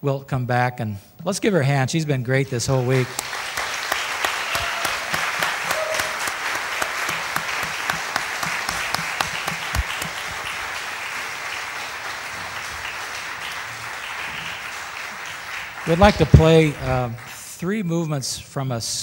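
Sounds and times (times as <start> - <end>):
audience applauding: 2.7 - 17.4
sharp close claps: 3.0 - 17.4.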